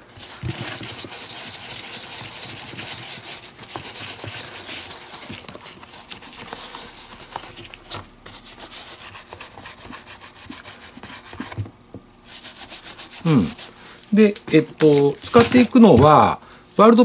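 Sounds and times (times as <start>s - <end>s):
brush scrubbing leather: 0.2s - 11.6s, 12.2s - 13.8s.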